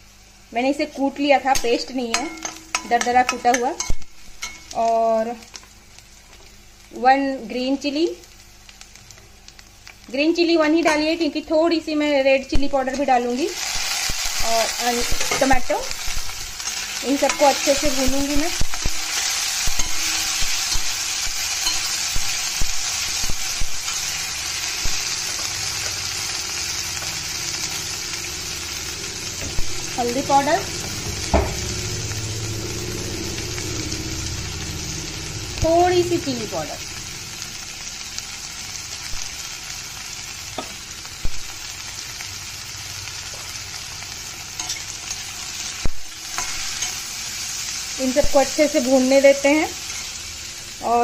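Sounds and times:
vegetables sizzling in a pan: 0:00.0 - 0:51.0
steel spatula scraping a pan: 0:13.0 - 0:23.2, 0:44.6 - 0:47.7
spatula knocking on pan: 0:31.0 - 0:31.8.

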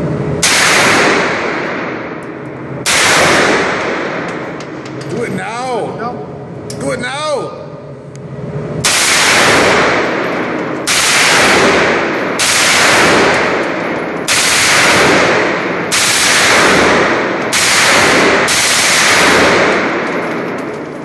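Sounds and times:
submachine gun shots: 0:00.4 - 0:01.6, 0:02.8 - 0:04.3, 0:08.8 - 0:20.5.

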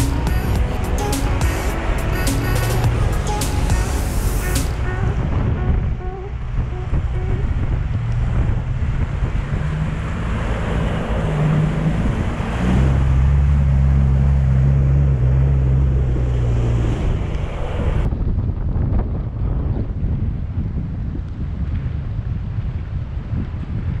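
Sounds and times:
water rushing and spraying: 0:00.0 - 0:05.8, 0:06.4 - 0:15.0
vehicle engine drone: 0:00.0 - 0:20.5
wind buffeting microphone: 0:02.8 - 0:24.0.

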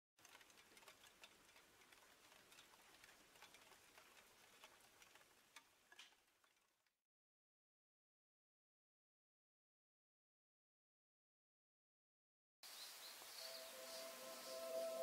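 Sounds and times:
soft ticks: 0:00.2 - 0:06.6
faint woodland ambience: 0:12.6 - 0:15.0.

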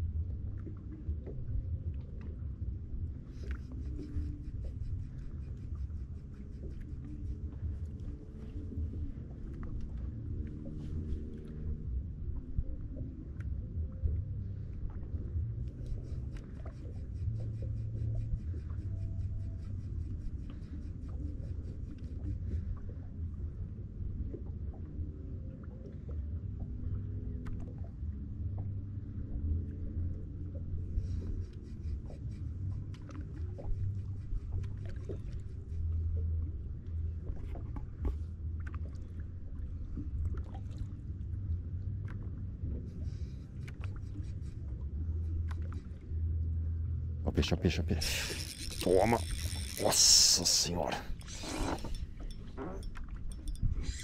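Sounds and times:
water rumbling: 0:00.0 - 0:54.0
wind: 0:00.0 - 0:54.0
fishing reel clicking: 0:47.8 - 0:54.0.

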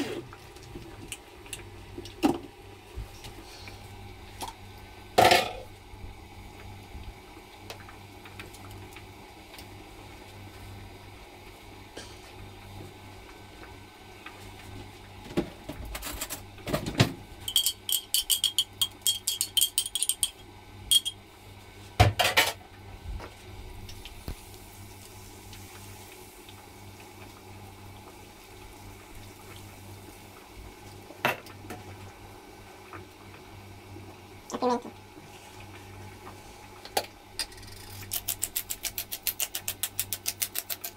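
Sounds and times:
metallic clinks of kitchenware: 0:17.5 - 0:21.2.

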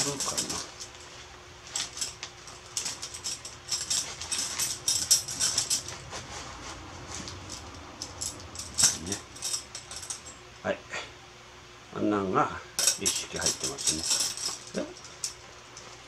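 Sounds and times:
metal tent pegs clinking: 0:00.0 - 0:00.9, 0:01.7 - 0:06.1, 0:07.2 - 0:10.4, 0:12.8 - 0:15.4.

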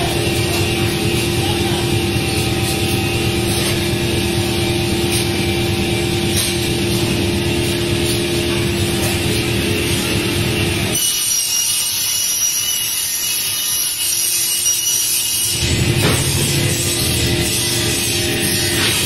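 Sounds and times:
mill machinery humming: 0:00.0 - 0:11.0, 0:15.5 - 0:19.0.

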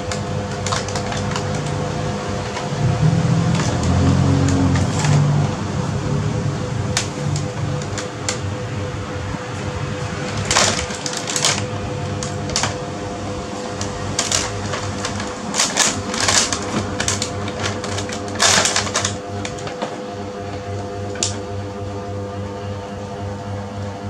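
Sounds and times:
plastic bag crinkling: 0:00.0 - 0:05.5, 0:06.9 - 0:08.6, 0:09.5 - 0:21.5.

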